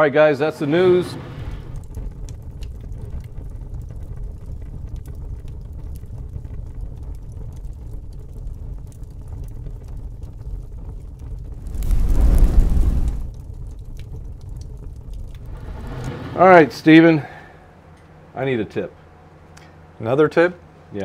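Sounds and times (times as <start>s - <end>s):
steady low rumble: 11.0s - 15.9s
rushing swell: 11.5s - 13.4s.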